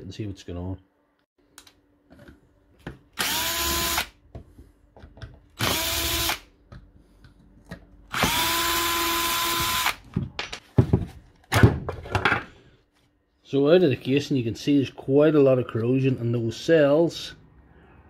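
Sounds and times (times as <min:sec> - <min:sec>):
power drill whining: 0:03.2 - 0:04.2, 0:05.6 - 0:06.4, 0:08.1 - 0:10.0.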